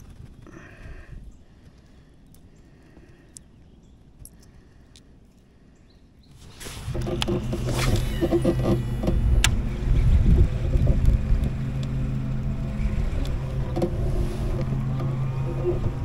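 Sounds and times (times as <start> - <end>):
wind noise: 6.4 - 16.0
electric outboard motor humming: 6.6 - 16.0.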